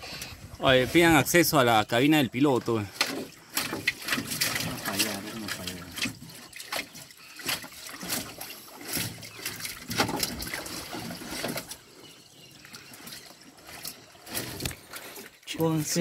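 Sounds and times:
water lapping around kayak: 0:00.0 - 0:16.0
sharp splashes and knocks: 0:02.9 - 0:11.8.

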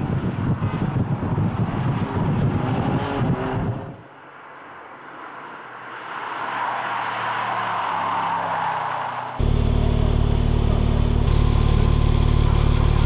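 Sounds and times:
approaching car engine: 0:09.3 - 0:13.0
car engine revving hard: 0:09.4 - 0:13.0.

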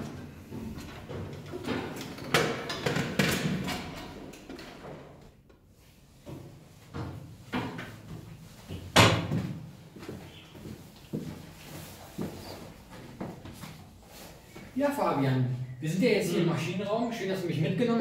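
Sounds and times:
footsteps on metal stairs: 0:00.0 - 0:02.9, 0:06.2 - 0:14.2.

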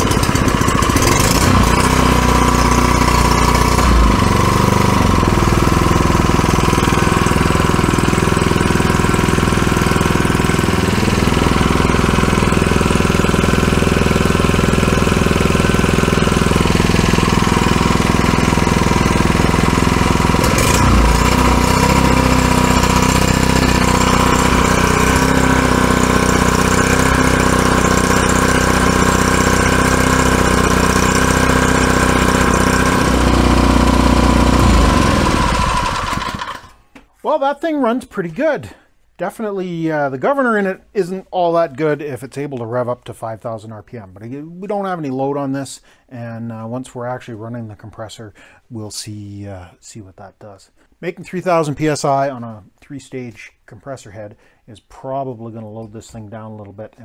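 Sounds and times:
small engine running fast: 0:00.0 - 0:36.8.

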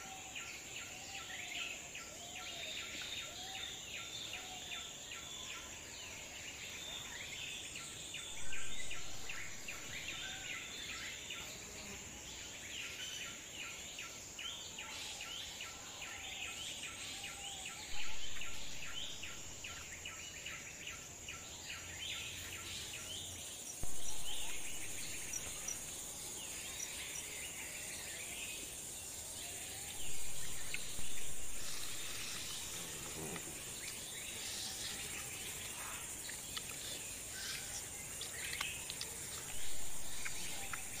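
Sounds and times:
high insect drone: 0:00.0 - 0:41.0
bird chirps: 0:08.1 - 0:11.0, 0:17.6 - 0:20.5, 0:21.4 - 0:28.7, 0:29.5 - 0:41.0.

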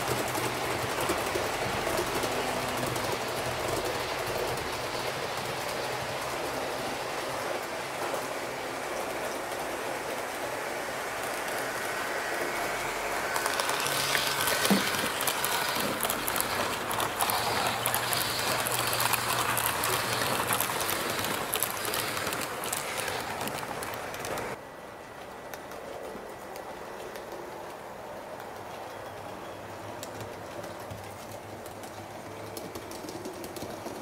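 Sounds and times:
train rolling noise: 0:00.0 - 0:34.0
small crackly clicks: 0:13.4 - 0:24.6, 0:30.0 - 0:34.0.

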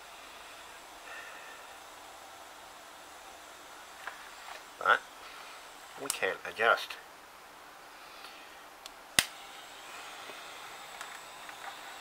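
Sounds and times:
gas soldering iron hissing: 0:00.0 - 0:06.8, 0:09.2 - 0:12.0.

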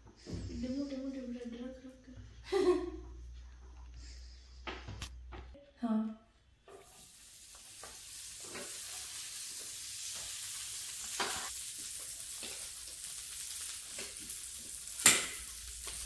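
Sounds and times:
butter sizzling on hot plates: 0:06.7 - 0:16.0.

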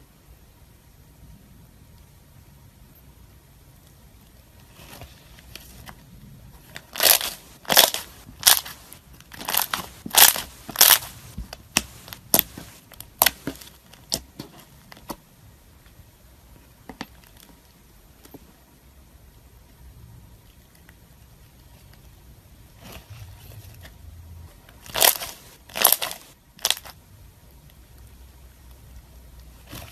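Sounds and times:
slime popping and crackling: 0:06.8 - 0:14.3, 0:24.8 - 0:26.9.

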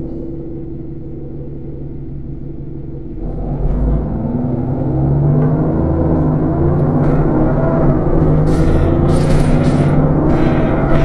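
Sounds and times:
bus diesel engine revving: 0:03.2 - 0:11.0.

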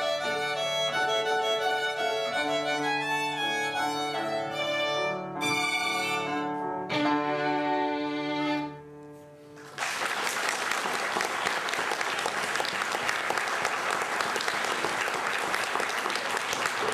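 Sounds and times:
folk band violins and cimbalom: 0:00.0 - 0:09.0
audience applause: 0:09.6 - 0:16.9.

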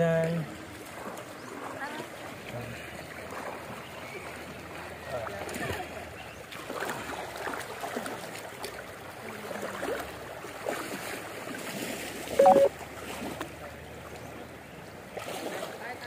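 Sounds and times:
river current splashing: 0:00.0 - 0:16.0
short tone rising in pitch: 0:12.4 - 0:12.7.

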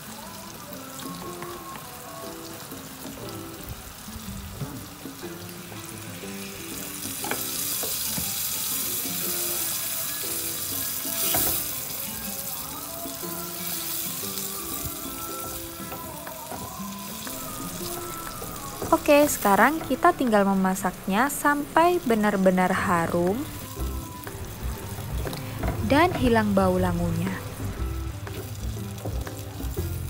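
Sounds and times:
background music: 0:00.0 - 0:30.0
onions sizzling in a frying pan: 0:00.0 - 0:30.0
wooden spatula stirring: 0:14.6 - 0:20.4.

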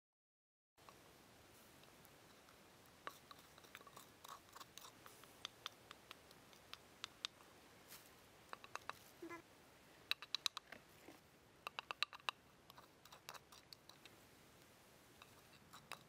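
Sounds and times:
faint steady hiss: 0:00.8 - 0:16.0
pestle tapping and scraping in mortar: 0:11.7 - 0:14.1, 0:15.2 - 0:16.0.

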